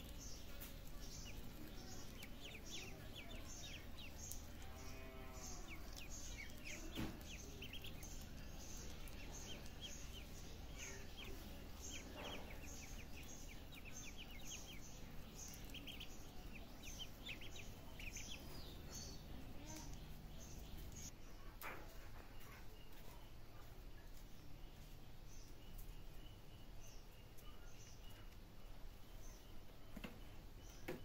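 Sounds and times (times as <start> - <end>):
ducklings peeping: 0.0 - 21.1
soft knock: 6.7 - 7.5.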